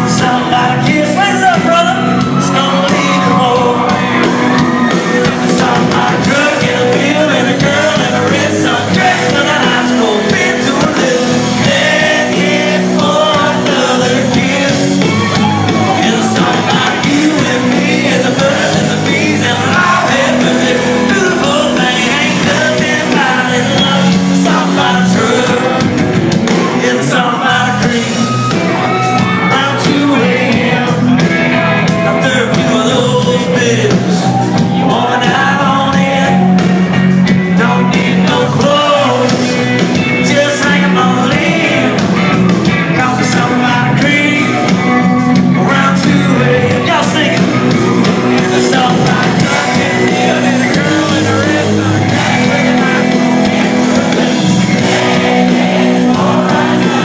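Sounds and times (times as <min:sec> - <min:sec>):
live country-rock band: 0:00.0 - 0:57.0
man singing lead vocal: 0:00.0 - 0:57.0.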